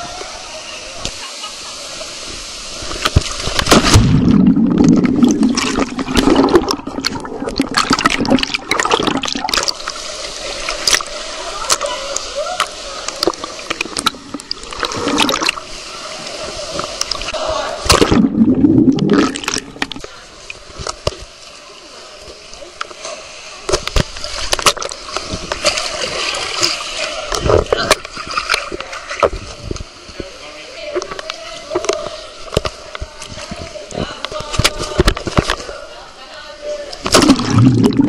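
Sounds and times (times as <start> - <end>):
heavy water surges: 0.0 - 35.6, 36.9 - 38.0
water sloshing and splashing: 2.8 - 21.3, 23.7 - 30.3, 37.0 - 38.0.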